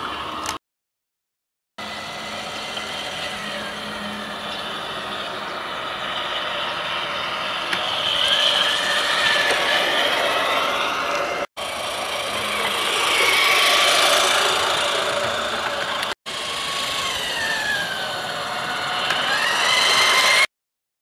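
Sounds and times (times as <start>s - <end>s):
toy train motor whining: 1.8s - 20.5s
toy wagon wheels rattling: 7.8s - 16.1s.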